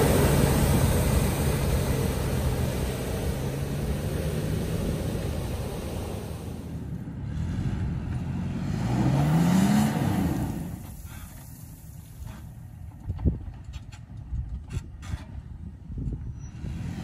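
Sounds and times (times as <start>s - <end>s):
car engine revving: 0.0s - 10.8s.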